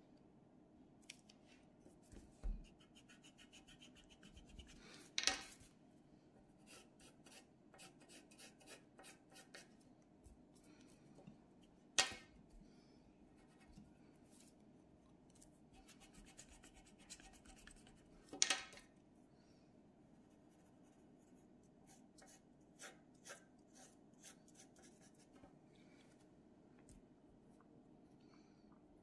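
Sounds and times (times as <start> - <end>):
pencil scratching on paper: 2.5 - 4.8, 6.6 - 9.7, 15.8 - 18.0, 20.2 - 25.3.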